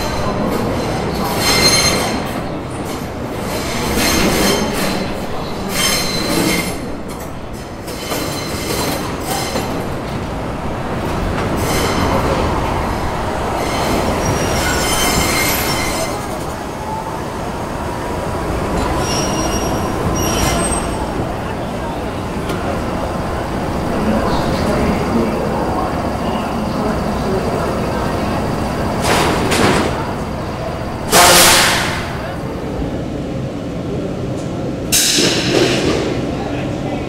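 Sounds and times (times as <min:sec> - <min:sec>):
subway wheels rumbling on rail: 0:00.0 - 0:37.0
train wheels squealing: 0:00.8 - 0:02.4, 0:03.5 - 0:06.8, 0:13.6 - 0:17.0, 0:18.7 - 0:21.3.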